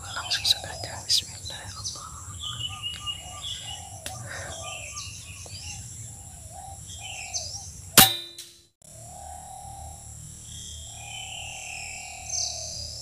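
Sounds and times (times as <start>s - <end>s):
birds chirping: 0.0s - 8.1s
air rifle shot with metallic ring: 8.0s - 8.6s.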